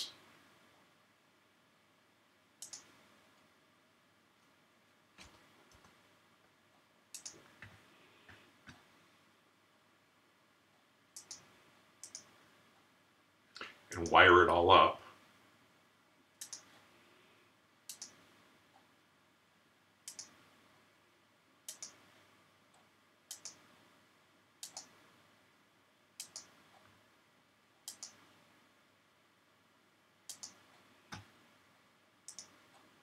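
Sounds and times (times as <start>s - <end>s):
mouse button clicks: 2.6s - 2.9s.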